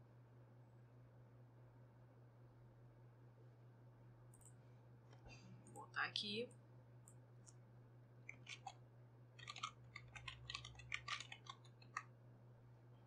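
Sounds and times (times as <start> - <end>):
computer keyboard typing: 8.3 - 8.8, 9.4 - 12.0.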